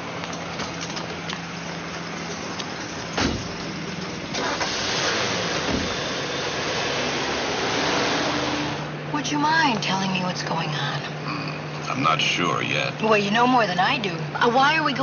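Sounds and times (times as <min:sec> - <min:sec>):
car engine starting and running: 0:00.0 - 0:15.0
thump: 0:03.2 - 0:03.6, 0:05.7 - 0:06.0.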